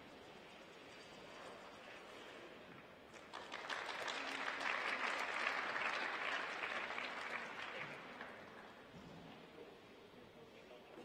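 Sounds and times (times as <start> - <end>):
audience applause: 3.2 - 8.6.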